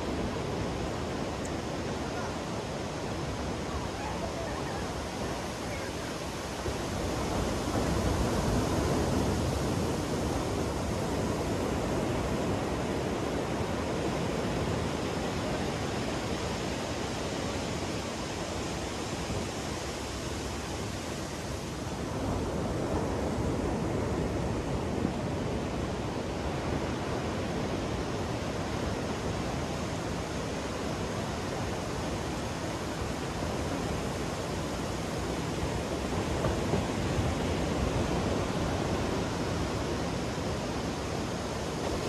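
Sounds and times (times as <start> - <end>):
ocean surf breaking on beach: 0.0 - 42.0.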